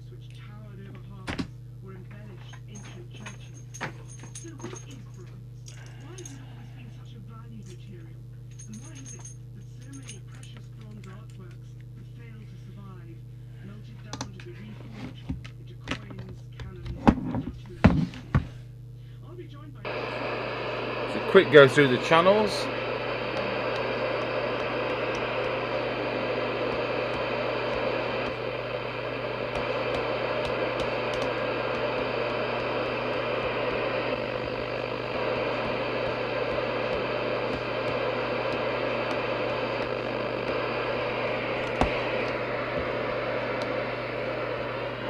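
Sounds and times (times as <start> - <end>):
radio receiver hiss: 19.8 - 45.0.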